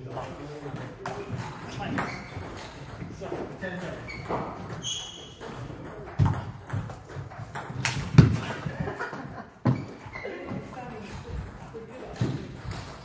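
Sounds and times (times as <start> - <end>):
brief high squeak: 4.1 - 5.4.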